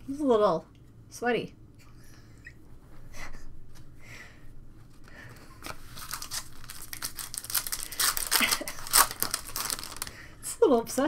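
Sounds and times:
cards being flipped through: 0:05.6 - 0:10.1.

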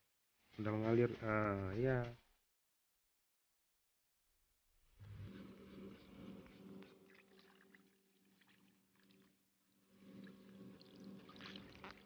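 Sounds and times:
water splashing and sloshing: 0:06.1 - 0:12.0.

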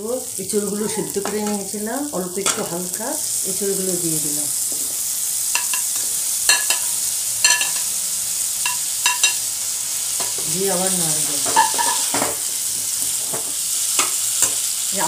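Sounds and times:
food sizzling in hot oil: 0:00.0 - 0:15.0
metal spatula clinking against pan: 0:05.6 - 0:05.9, 0:06.5 - 0:07.9, 0:08.7 - 0:09.4.

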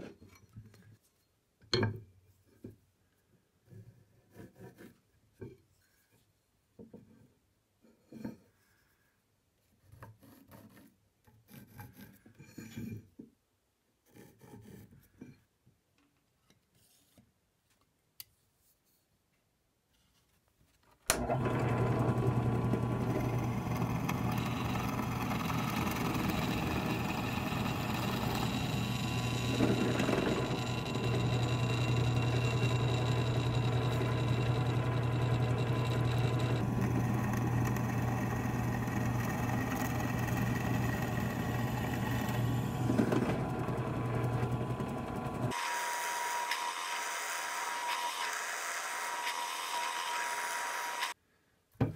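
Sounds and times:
drill press boring into wood: 0:21.1 - 0:51.2.

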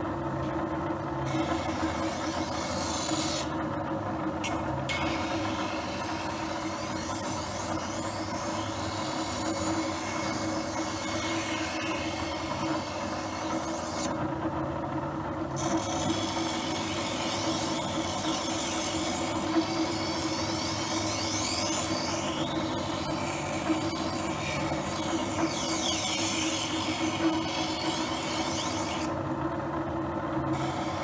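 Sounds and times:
sharpening machine motor hum: 0:00.0 - 0:31.0
knife rasping on grinding wheel: 0:01.2 - 0:03.6, 0:04.5 - 0:14.4, 0:15.4 - 0:29.3, 0:30.4 - 0:31.0.

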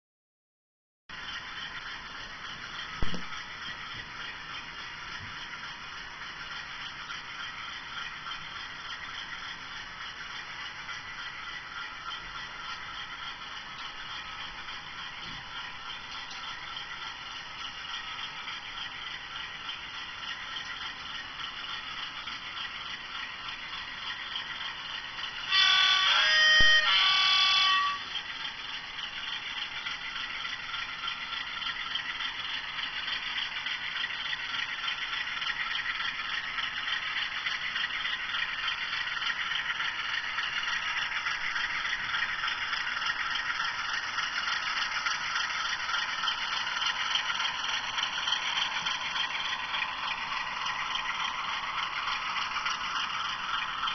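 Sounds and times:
model train whirring on track: 0:01.1 - 0:53.9
two-note train horn: 0:25.4 - 0:28.3.

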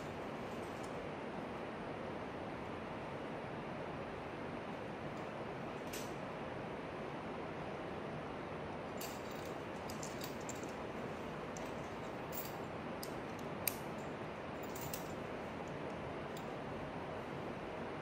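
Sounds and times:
outdoor background hiss: 0:00.0 - 0:18.0
climbing gear clicking and jingling: 0:14.6 - 0:15.2.

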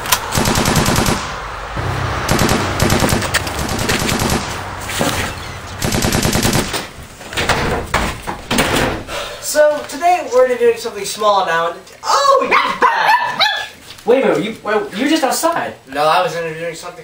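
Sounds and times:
rapid sharp shots: 0:00.0 - 0:07.0.

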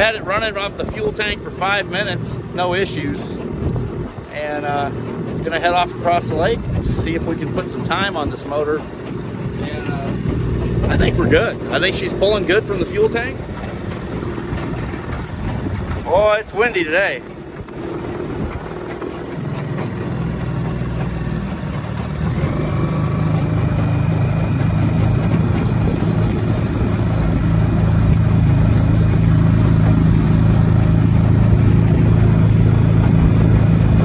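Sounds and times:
outboard motor running: 0:00.0 - 0:34.0.

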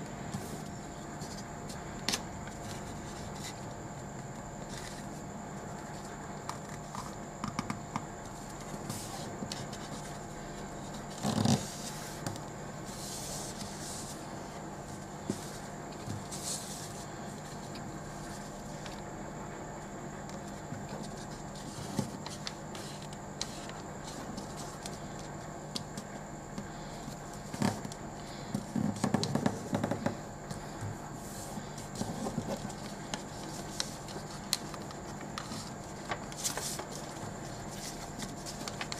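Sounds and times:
low steady hum: 0:00.0 - 0:38.9
paper rustling: 0:31.3 - 0:38.9.

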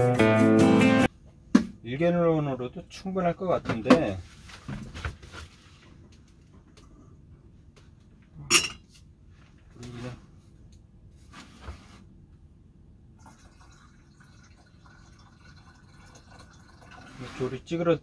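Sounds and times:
water pouring into watering can: 0:13.2 - 0:17.7.

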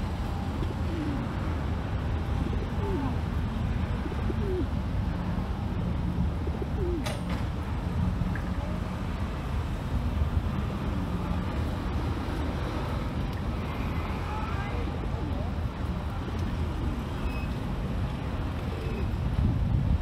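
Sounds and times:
low outdoor rumble: 0:00.0 - 0:20.0
pigeons cooing: 0:00.6 - 0:01.4, 0:02.4 - 0:03.2, 0:04.0 - 0:04.8, 0:06.4 - 0:07.2, 0:18.6 - 0:19.1.

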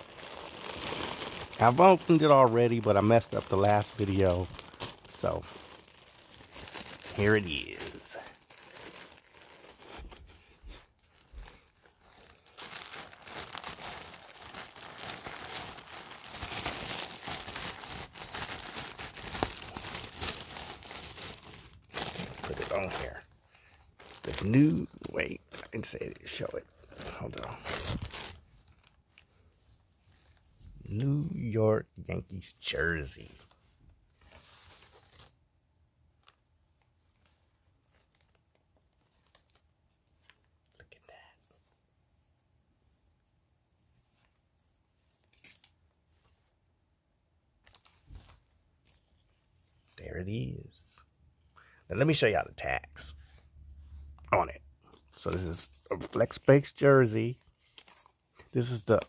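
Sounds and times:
plastic bag crinkling: 0:00.0 - 0:31.5
jersey and packaging rustling: 0:00.0 - 0:35.4, 0:47.6 - 0:59.0.

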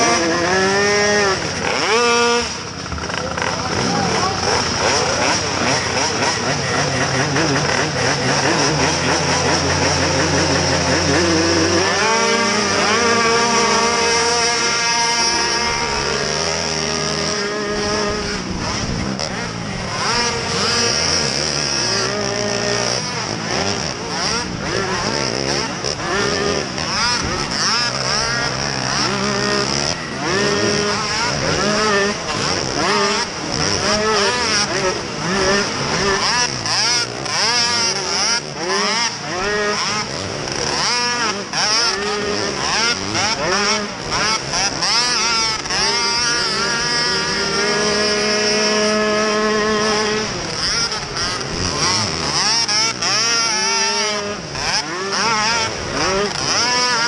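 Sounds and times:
quad engines at full throttle: 0:00.0 - 0:57.0.

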